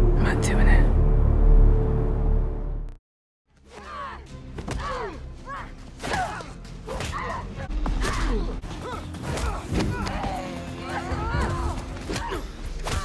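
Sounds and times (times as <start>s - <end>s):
background music: 0.0s - 13.0s
effort shouts and grunts: 3.7s - 13.0s.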